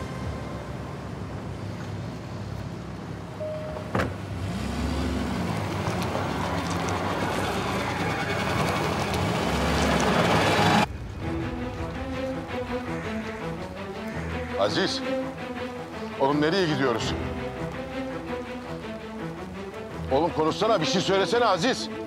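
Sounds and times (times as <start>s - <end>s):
tyres on gravel: 4.4s - 22.0s.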